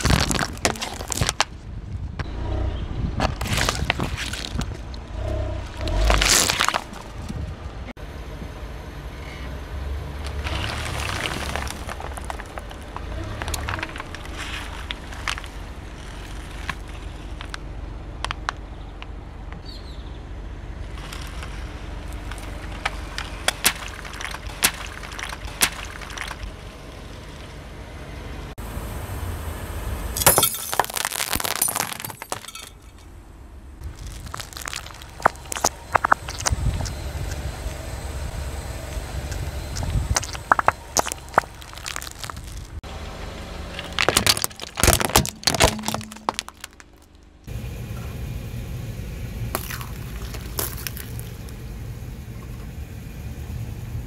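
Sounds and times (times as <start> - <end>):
plastic bottles bursting: 0.0 - 1.5, 23.2 - 26.5, 30.3 - 32.7, 39.8 - 42.8, 43.8 - 47.2
car tyre crushing objects: 0.0 - 1.8, 3.2 - 7.9, 10.2 - 19.2, 20.9 - 27.6, 30.2 - 37.8, 38.8 - 47.5, 49.5 - 51.8.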